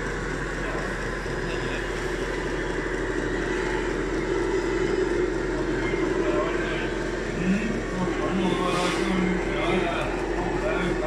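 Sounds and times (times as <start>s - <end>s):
model excavator hydraulics whining: 0.0s - 11.0s.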